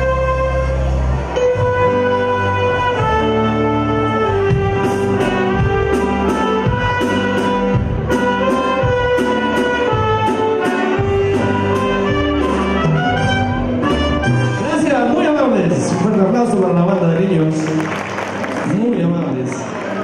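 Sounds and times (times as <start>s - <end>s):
saxophones playing melody: 0.0s - 15.2s
live band playing: 0.0s - 20.0s.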